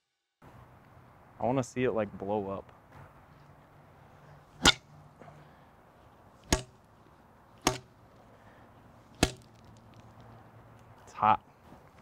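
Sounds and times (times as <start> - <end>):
metal tool striking asphalt: 4.6 - 4.9, 6.4 - 6.9, 7.6 - 8.0, 9.1 - 9.7.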